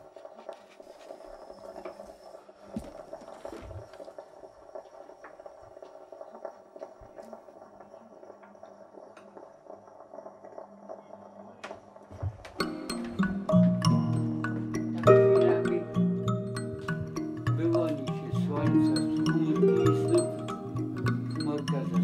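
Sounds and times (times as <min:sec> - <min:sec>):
moka pot gurgling and hissing: 0:00.0 - 0:22.0
small pops and clicks: 0:02.8 - 0:11.0.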